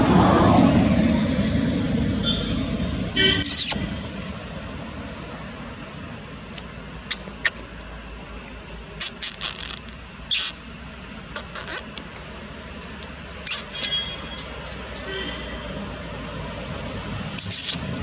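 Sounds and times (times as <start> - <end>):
steady background hiss: 1.1 - 18.0
high-pitched bird chirps: 3.4 - 3.8, 10.3 - 11.8, 13.5 - 14.8, 17.4 - 17.8.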